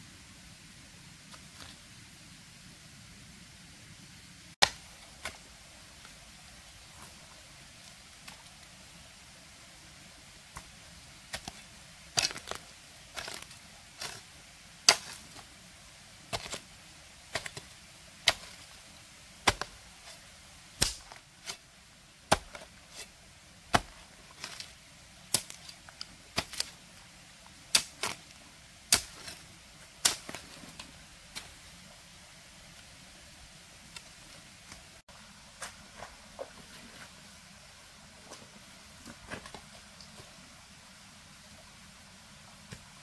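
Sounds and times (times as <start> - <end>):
hoe chopping wet soil: 4.6 - 5.4, 10.5 - 15.5, 16.3 - 18.8, 19.4 - 20.2, 20.8 - 21.6, 22.2 - 26.8, 27.7 - 31.6.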